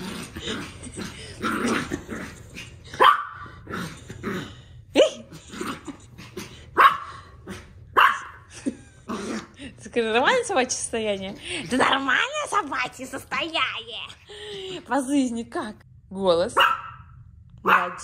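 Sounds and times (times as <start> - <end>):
small dog barking: 3.0 - 3.5, 6.8 - 7.1, 7.9 - 8.5, 16.6 - 18.0.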